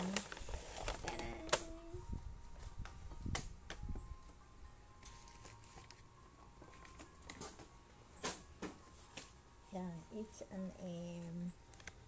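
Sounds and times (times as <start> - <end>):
paper bag rustling and crinkling: 0.0 - 1.7, 5.0 - 6.0.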